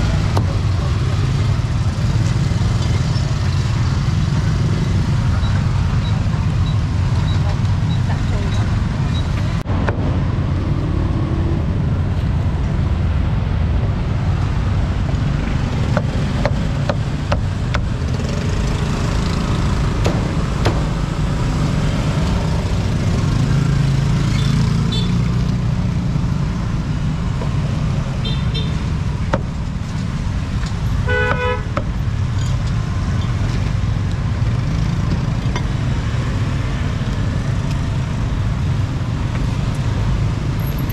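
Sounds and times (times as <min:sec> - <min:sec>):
passing vehicle engines rumbling: 0:00.0 - 0:40.9
sharp knocks: 0:20.0 - 0:21.1
vehicle horn honking: 0:31.0 - 0:31.8.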